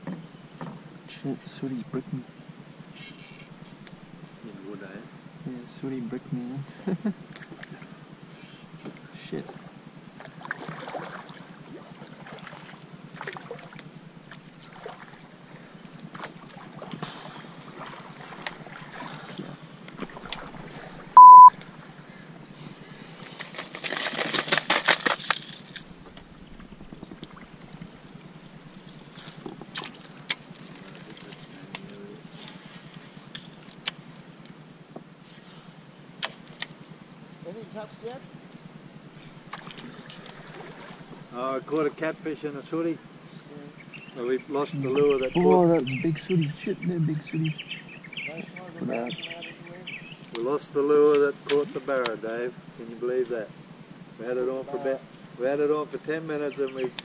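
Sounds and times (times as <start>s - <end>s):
electronic beep: 21.2s - 21.5s
fishing lures rattling in box: 23.2s - 25.9s.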